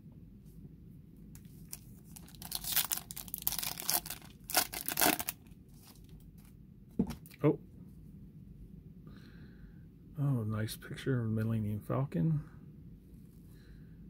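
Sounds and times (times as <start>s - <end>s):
foil wrapper ripping and crinkling: 1.4s - 6.1s.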